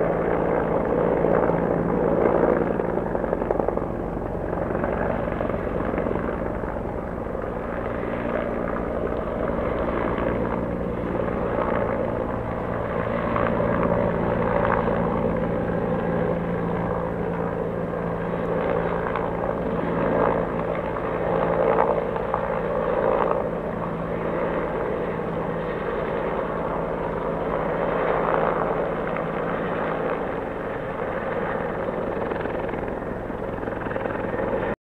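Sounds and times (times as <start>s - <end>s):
helicopter flying overhead: 0.0s - 34.8s.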